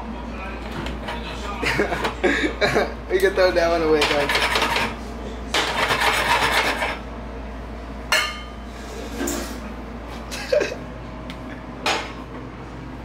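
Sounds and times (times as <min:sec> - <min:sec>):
utensil scraping frying pan: 0:04.0 - 0:05.0, 0:05.6 - 0:07.0.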